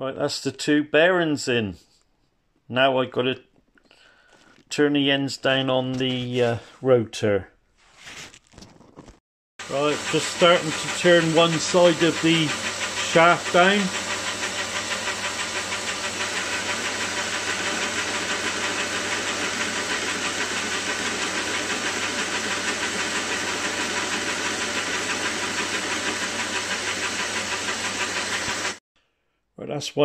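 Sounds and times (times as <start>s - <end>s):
metal lathe running: 9.6s - 28.8s.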